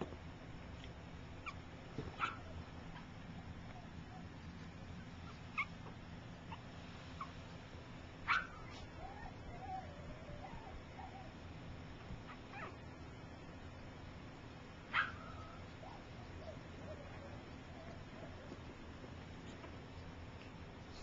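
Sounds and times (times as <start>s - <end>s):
puppy whining: 1.4s - 1.6s, 2.2s - 7.4s, 8.3s - 11.4s, 12.2s - 12.8s, 14.9s - 18.7s
puppies squeaking and whimpering: 5.2s - 5.8s.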